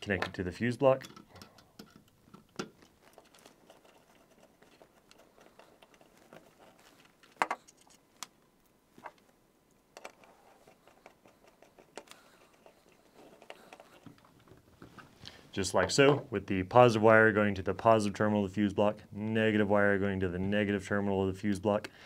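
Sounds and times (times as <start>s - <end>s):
faint rustling of wire: 0.0s - 17.0s.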